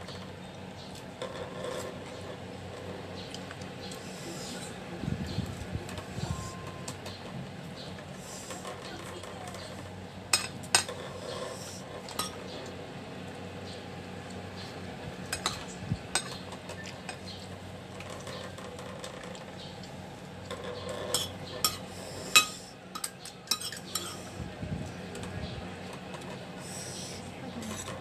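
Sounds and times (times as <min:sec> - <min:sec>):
cutlery clinking on a plate: 0:20.5 - 0:24.2.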